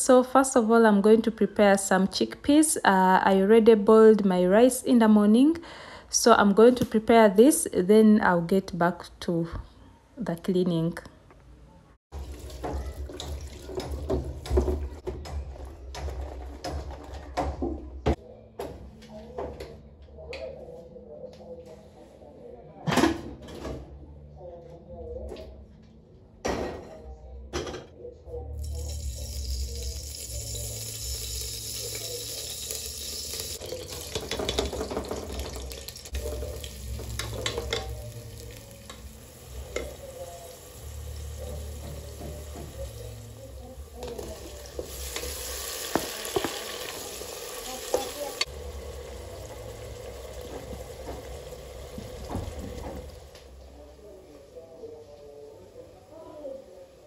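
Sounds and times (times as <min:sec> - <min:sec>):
food sizzling in a frying pan: 0:28.6 - 0:53.4.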